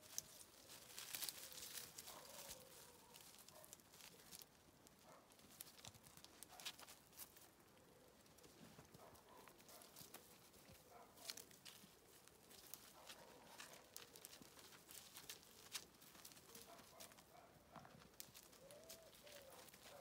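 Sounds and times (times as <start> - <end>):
dog paws on gravel and leaves: 0.0 - 7.6, 8.3 - 20.0
leaves rustling: 0.0 - 20.0.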